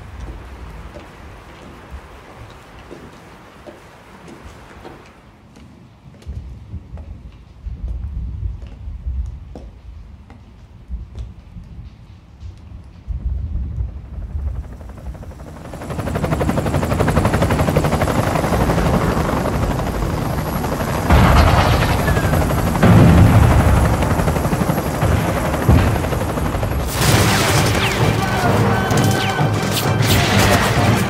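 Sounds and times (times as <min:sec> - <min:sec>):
helicopter rotors chopping: 0:13.1 - 0:31.0.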